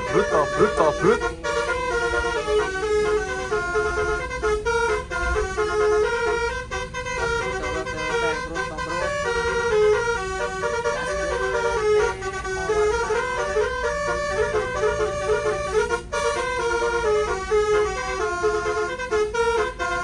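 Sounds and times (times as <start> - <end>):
bus air horn melody: 0.0 - 20.0.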